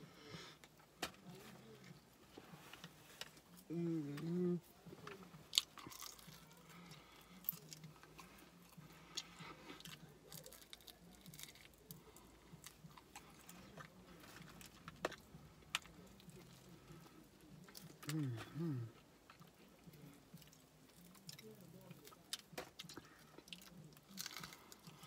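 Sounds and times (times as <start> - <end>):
person chewing crunchy food: 5.0 - 25.0.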